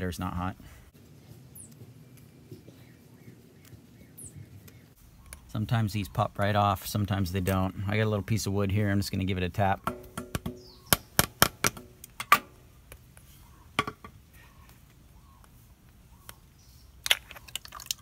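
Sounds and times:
knocks and clicks of metal cover: 9.8 - 12.6, 13.8 - 14.2
wood tapping metal cover: 9.8 - 12.6, 13.8 - 14.2.

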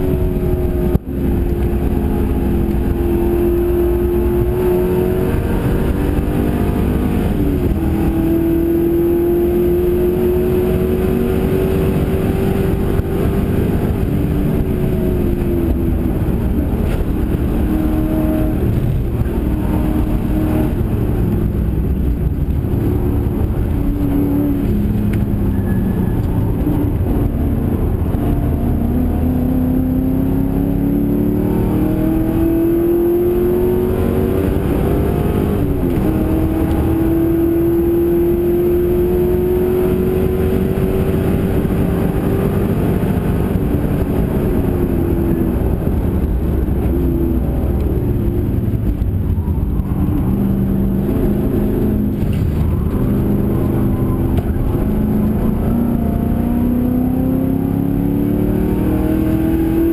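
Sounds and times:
race car engine revving: 0.0 - 59.9.

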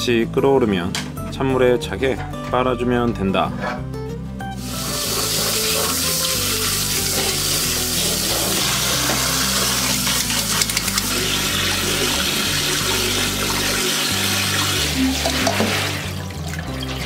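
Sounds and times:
hands rinsing noodles splashing: 4.6 - 17.0
tap water running into sink: 4.6 - 17.0.

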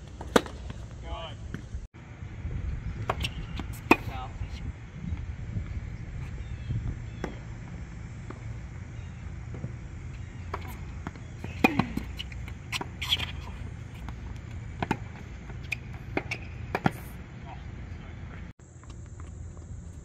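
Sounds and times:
tennis balls struck by rackets: 0.1 - 1.8, 3.0 - 4.3, 6.9 - 18.4
steady low rumble: 0.7 - 20.0.

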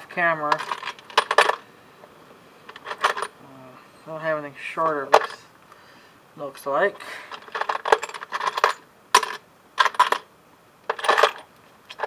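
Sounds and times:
metal screws rattling in a tub: 0.4 - 1.6, 2.7 - 3.3, 7.3 - 10.3, 10.9 - 12.0.

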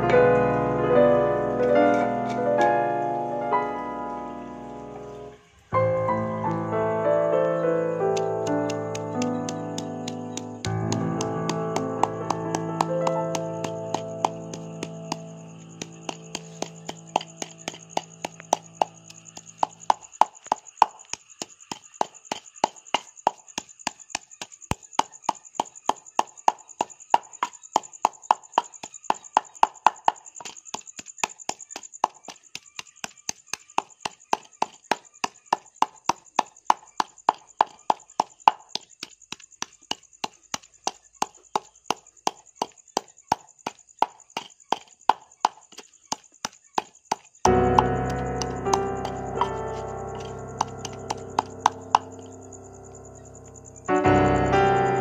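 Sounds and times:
music: 0.0 - 19.3, 47.5 - 55.0
pestle pounding in mortar: 8.1 - 52.4.

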